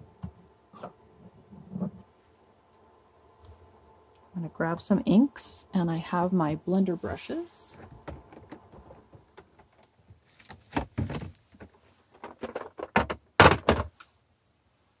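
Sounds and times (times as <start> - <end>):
plastic cases knocking and clattering: 7.8 - 14.1.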